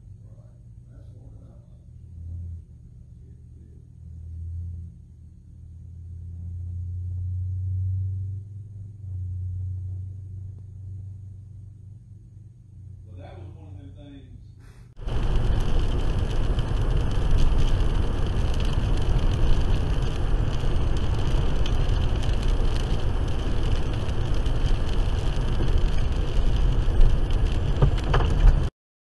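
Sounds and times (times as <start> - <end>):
road and tyre noise in car: 14.9 - 28.7.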